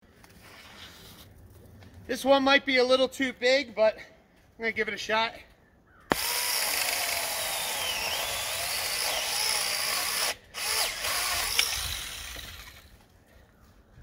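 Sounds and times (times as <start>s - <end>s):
chainsaw cutting a branch: 6.1s - 13.0s.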